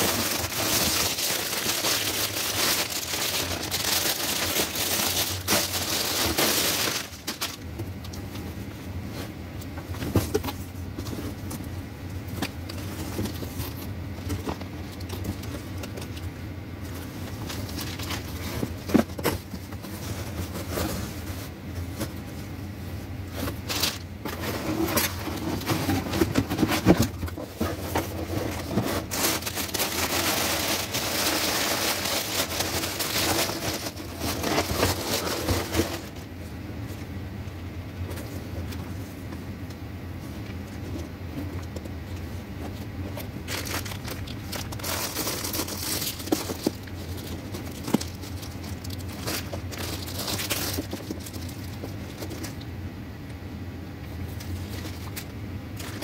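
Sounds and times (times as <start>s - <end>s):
tissue paper crinkling: 0.0s - 7.7s, 16.8s - 22.3s, 27.6s - 36.4s, 42.2s - 52.6s
cardboard and fabric rustling: 0.0s - 52.8s, 54.0s - 56.0s
steady low hum: 0.0s - 56.0s.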